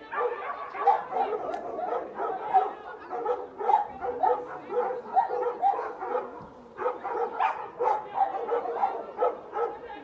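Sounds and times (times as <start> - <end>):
dogs barking: 0.1 - 9.8.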